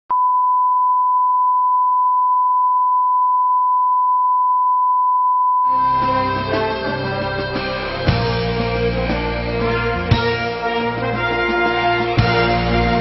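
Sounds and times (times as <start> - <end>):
steady sine test tone: 0.1 - 5.8.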